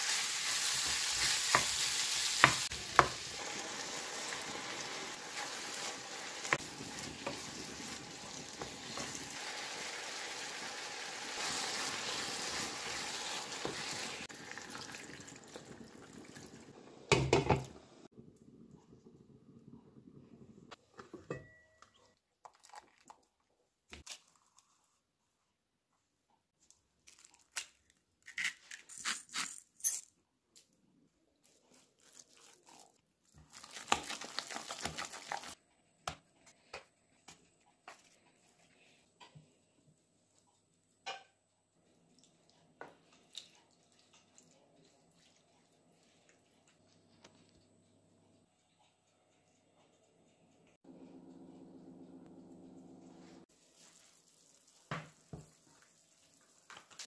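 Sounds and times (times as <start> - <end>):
potatoes squelching in glass bowl: 31.4 - 35.6
low simmering hiss: 37.8 - 57.0.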